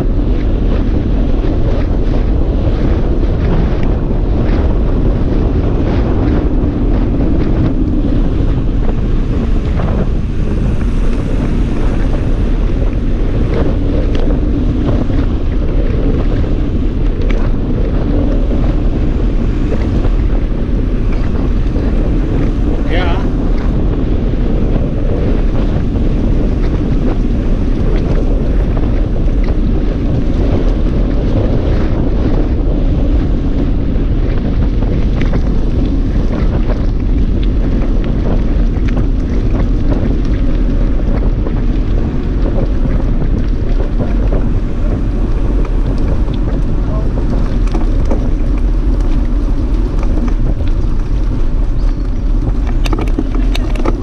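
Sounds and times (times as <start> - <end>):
bike tyres rolling on lane: 0.0 - 54.0
wind buffeting microphone: 0.0 - 54.0.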